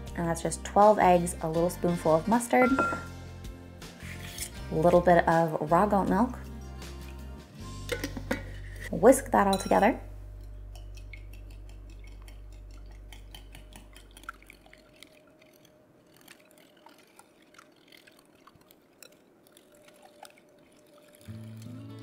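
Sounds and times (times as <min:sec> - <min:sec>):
whisk clicking against bowl: 0:10.7 - 0:15.1
liquid sloshing: 0:10.8 - 0:22.0.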